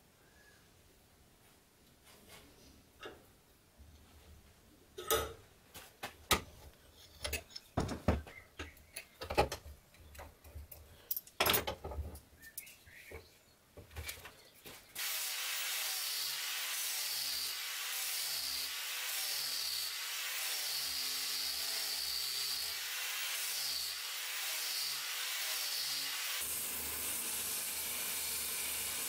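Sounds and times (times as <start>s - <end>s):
angle grinder sanding wood: 15.0s - 29.0s.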